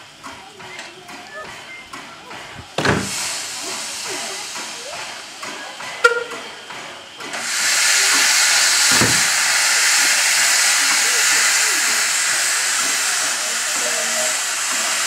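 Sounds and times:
steam locomotive hissing: 0:00.0 - 0:15.0
thump: 0:02.8 - 0:03.2, 0:08.9 - 0:09.3.

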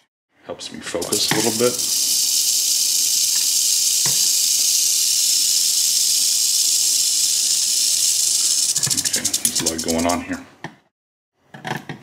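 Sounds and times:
rattlesnake rattling: 0:00.8 - 0:10.3.

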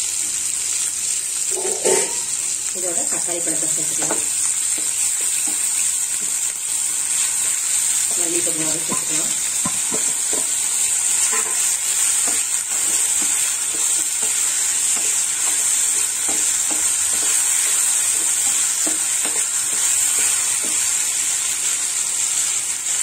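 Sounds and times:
vegetables sizzling in oil: 0:00.0 - 0:23.0
wooden spatula scraping pan: 0:08.2 - 0:20.9.

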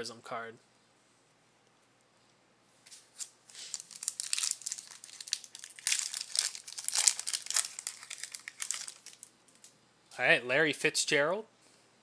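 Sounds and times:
card pack wrapper tearing: 0:03.2 - 0:09.7.

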